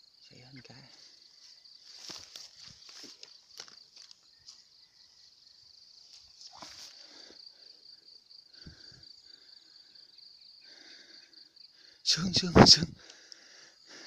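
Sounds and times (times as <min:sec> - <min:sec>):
insects chirring: 0:00.0 - 0:14.0
rustling in grass: 0:01.4 - 0:04.7, 0:06.0 - 0:07.1.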